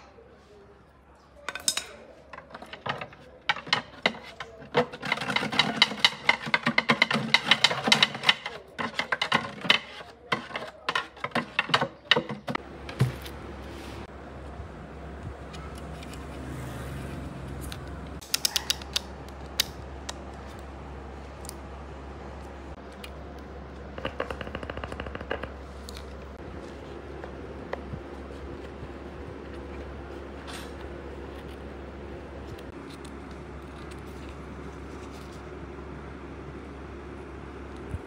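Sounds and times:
steady low hum: 19.0 - 38.0.

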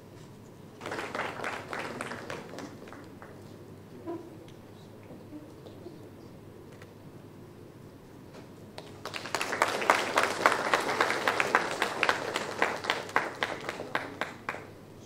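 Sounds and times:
audience applauding: 0.8 - 3.5, 8.8 - 14.7.

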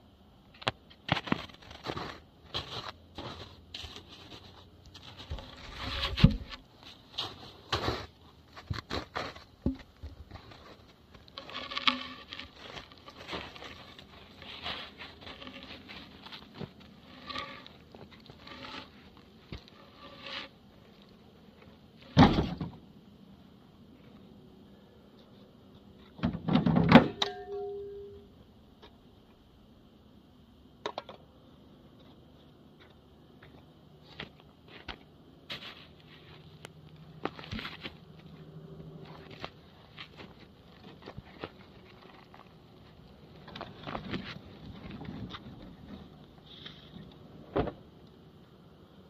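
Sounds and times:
log knocking and scraping: 0.6 - 20.6, 37.2 - 47.8
log thudding: 5.2 - 6.6, 7.2 - 10.6, 22.2 - 22.8.

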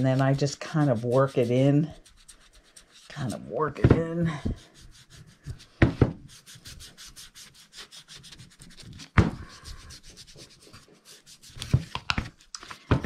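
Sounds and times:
foam applicator scrubbing wood: 0.0 - 5.8.

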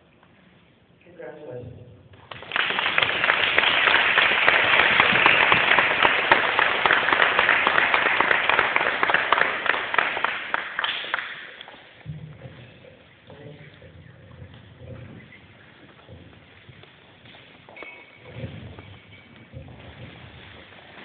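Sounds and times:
audience applauding: 2.3 - 12.0.

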